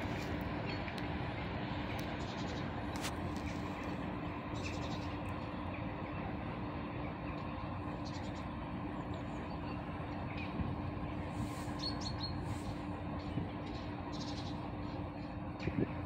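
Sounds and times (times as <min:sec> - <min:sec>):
distant electric train rumble: 0:00.0 - 0:16.0.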